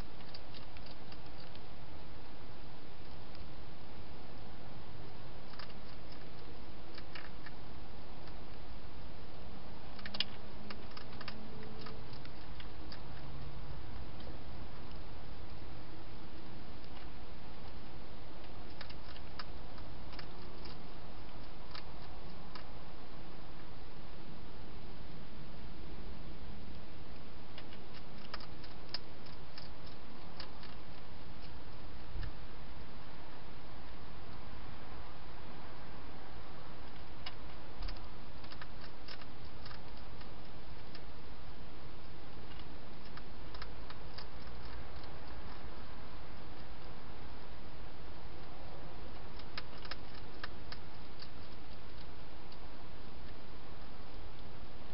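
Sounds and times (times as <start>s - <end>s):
hedgehog chewing clicks: 0.0s - 1.7s, 5.4s - 8.6s, 9.9s - 15.6s, 16.2s - 17.8s, 18.4s - 22.8s, 26.7s - 32.4s, 36.8s - 47.0s, 48.3s - 53.4s
steady hiss: 0.0s - 54.9s.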